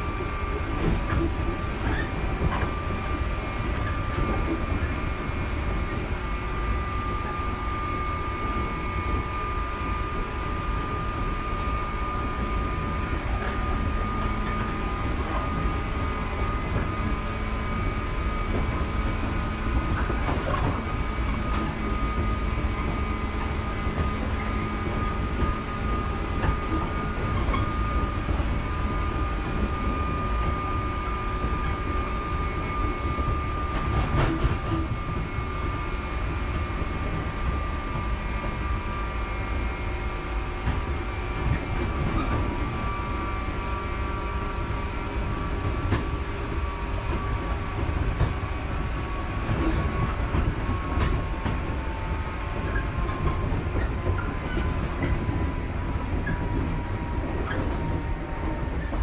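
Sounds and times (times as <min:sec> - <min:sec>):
rail-joint clacks: 0:00.0 - 0:06.3, 0:10.8 - 0:30.6, 0:31.4 - 0:35.4, 0:44.3 - 0:59.0
electric train rumble: 0:00.0 - 0:59.0.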